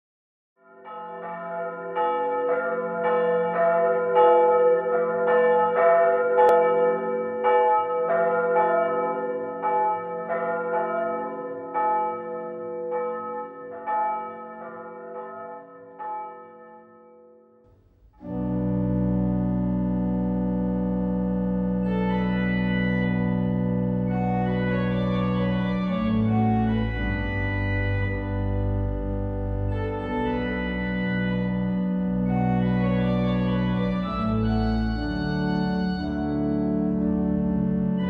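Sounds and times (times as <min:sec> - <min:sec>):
church bells ringing: 0:00.6 - 0:17.6, 0:18.2 - 0:38.0
organ chord: 0:18.1 - 0:38.0.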